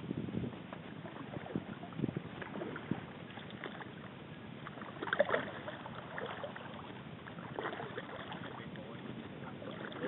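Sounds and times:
paddle splashing water: 0:00.0 - 0:10.0
water lapping at hull: 0:00.0 - 0:10.0.

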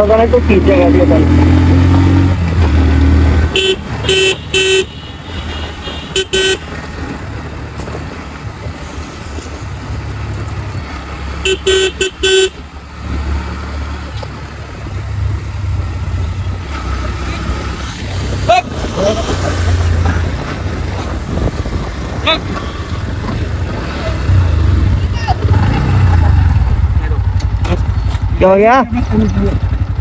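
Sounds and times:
motorcycle engine riding: 0:00.0 - 0:30.0
wind: 0:00.0 - 0:30.0
vehicle horn beeping: 0:03.5 - 0:06.7, 0:11.4 - 0:12.6.

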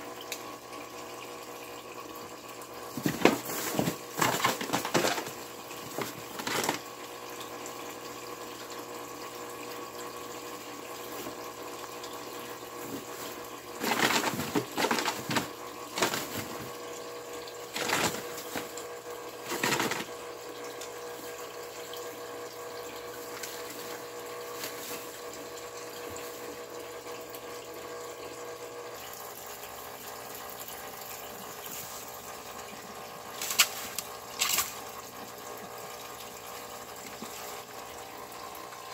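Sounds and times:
mechanical hum: 0:00.0 - 0:38.9
rabbit digging in hay: 0:03.0 - 0:05.3, 0:23.4 - 0:25.2, 0:33.4 - 0:34.7.

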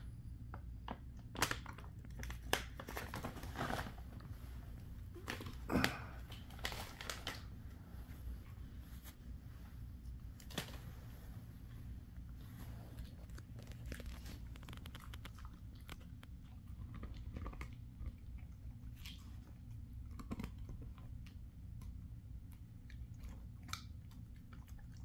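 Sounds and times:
plastic pouch crinkling: 0:01.3 - 0:04.3, 0:05.1 - 0:07.6, 0:12.9 - 0:16.4.

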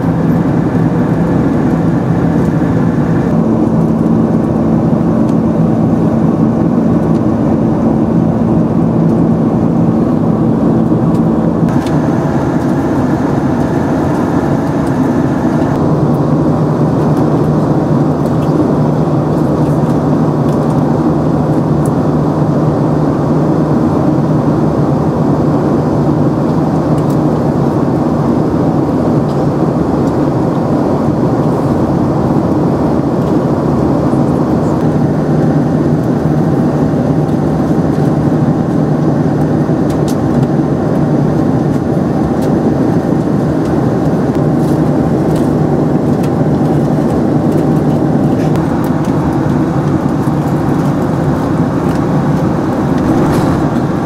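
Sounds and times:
steady low hum: 0:00.0 - 0:23.4, 0:51.7 - 0:54.0
jet engine and airflow roar: 0:00.0 - 0:54.0.

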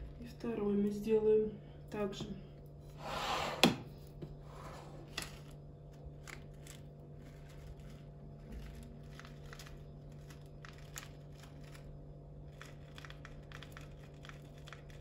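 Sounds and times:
low steady hum: 0:00.0 - 0:15.0
small clicks and crinkles: 0:05.1 - 0:15.0.

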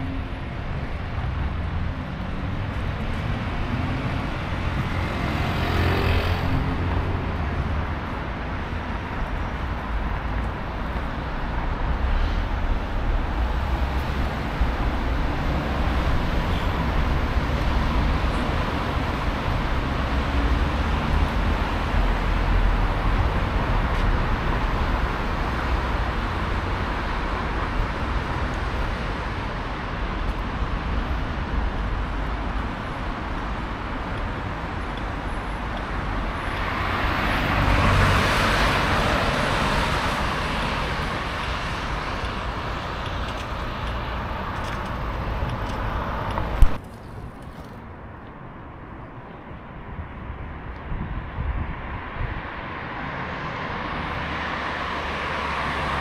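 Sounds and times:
road traffic rumble: 0:00.0 - 0:56.0
vehicle passing: 0:01.2 - 0:08.6, 0:36.6 - 0:46.8.

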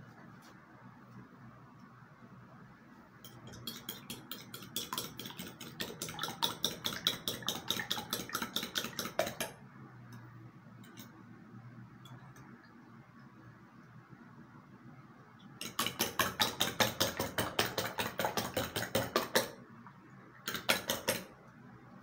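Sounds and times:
fork beating eggs in a bowl: 0:03.2 - 0:09.6, 0:15.6 - 0:19.6, 0:20.5 - 0:21.3
fork tapping bowl: 0:03.2 - 0:09.6.

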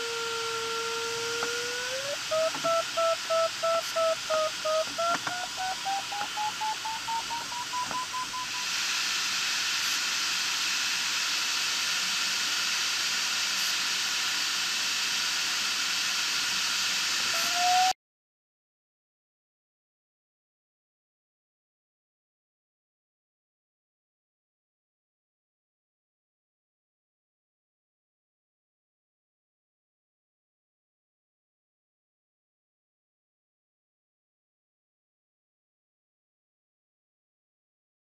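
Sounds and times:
steady electronic tone: 0:00.0 - 0:08.7
airflow hiss: 0:00.0 - 0:18.0
variometer beeps rising in pitch: 0:01.9 - 0:08.7.

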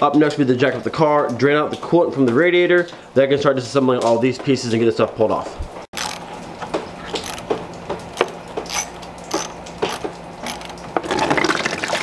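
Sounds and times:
coolant splashing into a pan: 0:06.2 - 0:12.0.

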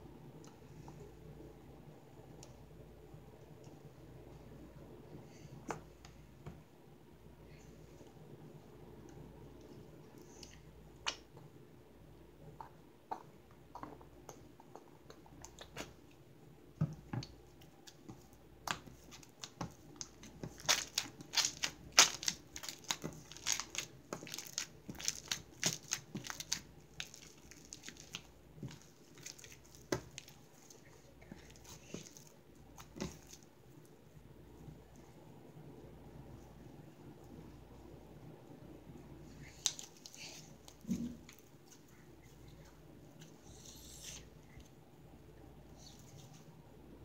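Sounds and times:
hands squishing slime: 0:17.0 - 0:33.6, 0:39.2 - 0:44.3.

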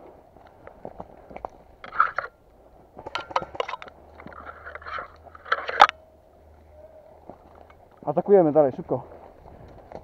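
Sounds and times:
crunching and rustling: 0:00.0 - 0:06.1.

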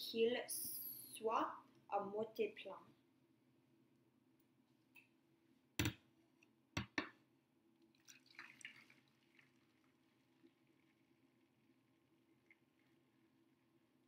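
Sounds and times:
water trickling into metal pan: 0:07.9 - 0:13.0.

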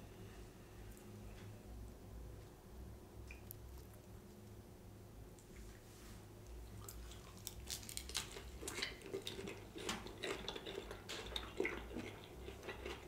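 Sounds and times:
wet chewing with crunches: 0:06.6 - 0:13.0.

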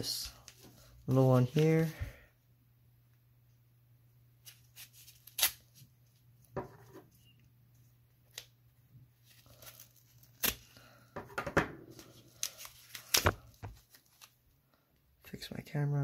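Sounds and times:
paper rustling and tearing: 0:04.4 - 0:05.8, 0:12.0 - 0:14.4.

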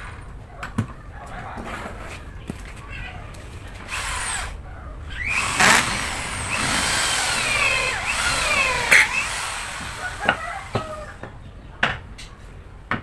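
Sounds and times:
electric drill boring into wood: 0:03.9 - 0:04.5, 0:05.1 - 0:11.1.

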